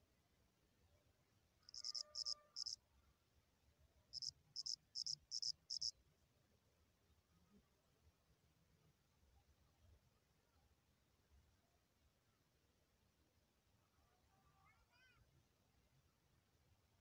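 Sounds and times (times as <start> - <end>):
cricket chirping: 1.6 - 2.8, 4.1 - 6.0.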